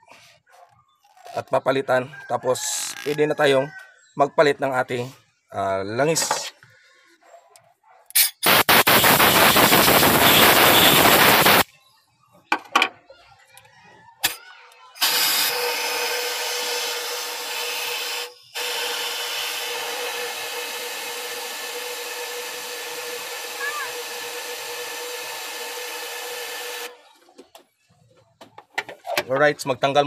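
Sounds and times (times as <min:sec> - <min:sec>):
compressed air hissing: 0:08.2 - 0:11.6.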